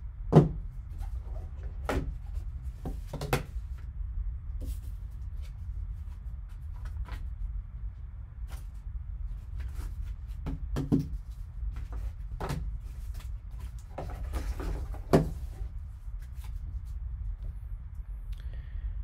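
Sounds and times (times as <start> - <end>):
steady low hum: 0.0 - 19.0
box handling clicks and rustles: 11.8 - 15.6.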